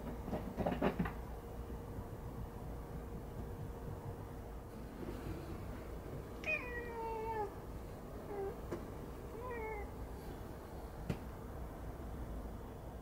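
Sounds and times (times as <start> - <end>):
cat chirping: 6.4 - 7.6, 8.3 - 8.6, 9.3 - 10.0.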